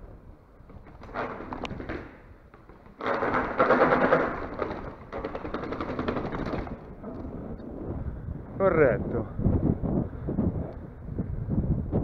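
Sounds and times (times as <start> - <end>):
mountain bike rattling over rough ground: 0.6 - 7.6.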